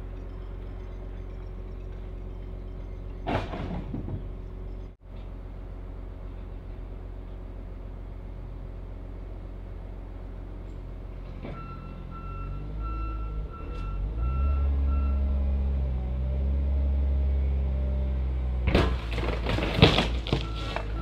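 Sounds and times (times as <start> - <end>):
reversing alarm beeping: 0.0 - 5.0, 11.5 - 15.5, 20.3 - 21.0
loud crunching metal impacts: 3.0 - 4.7, 18.6 - 21.0
loader engine revving: 11.1 - 18.7.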